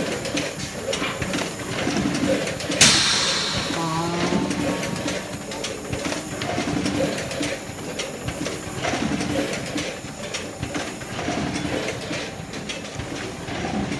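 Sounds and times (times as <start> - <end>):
conveyor mechanical clatter: 4.9 - 13.9.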